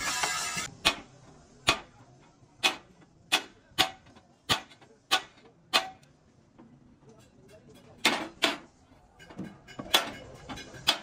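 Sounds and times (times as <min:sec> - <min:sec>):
hammer striking metal: 0:08.0 - 0:11.0.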